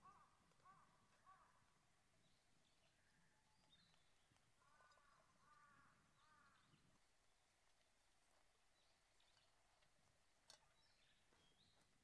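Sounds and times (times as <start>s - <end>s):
faint crow cawing: 0.0s - 1.9s, 4.5s - 7.0s.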